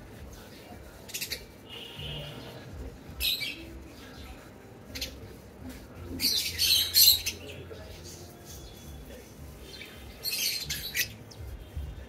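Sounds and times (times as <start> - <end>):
lovebirds chirping harshly: 6.2 - 11.9.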